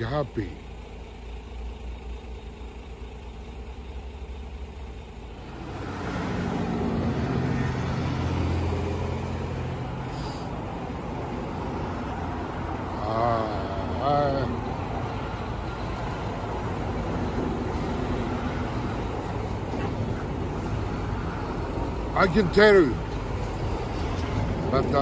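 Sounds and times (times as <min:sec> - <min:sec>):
motor vehicle passing: 0:05.3 - 0:22.1.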